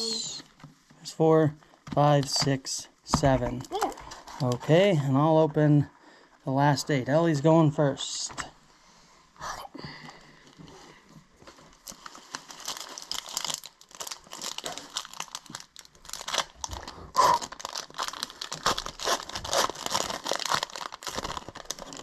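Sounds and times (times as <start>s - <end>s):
foil wrapper crinkling: 11.4s - 22.0s.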